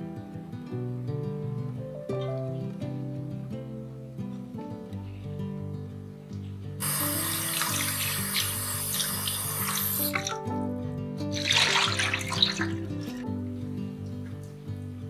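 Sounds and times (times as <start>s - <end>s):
soft guitar music: 0.0s - 15.0s
water splash: 6.8s - 10.5s, 11.3s - 13.2s
tap running into steel bowl: 6.9s - 10.4s.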